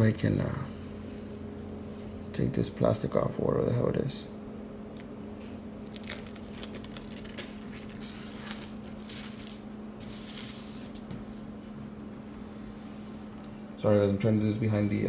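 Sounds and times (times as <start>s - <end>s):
plastic sheet crackling: 5.8s - 11.0s.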